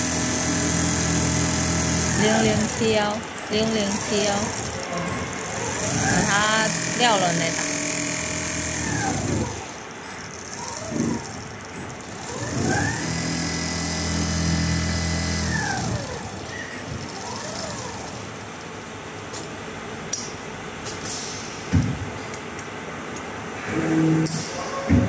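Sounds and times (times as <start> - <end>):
sewing machine motors whining: 0.0 - 18.4.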